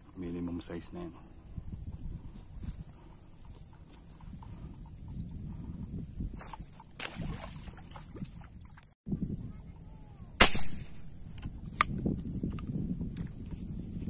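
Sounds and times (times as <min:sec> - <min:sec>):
speargun firing snap: 0:10.4 - 0:12.0.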